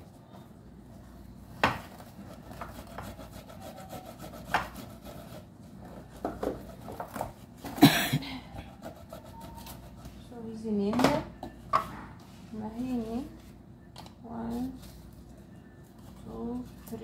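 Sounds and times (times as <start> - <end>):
rubbing sounds: 1.9 - 7.2.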